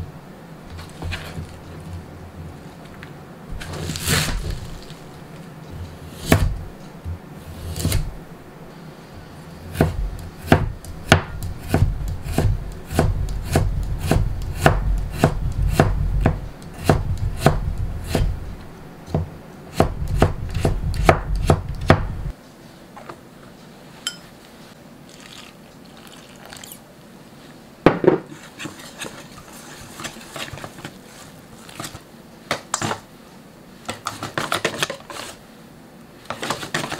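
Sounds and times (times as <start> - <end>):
knife chopping on plastic board: 6.1 - 6.6, 7.6 - 8.1, 9.7 - 18.4, 19.1 - 22.3.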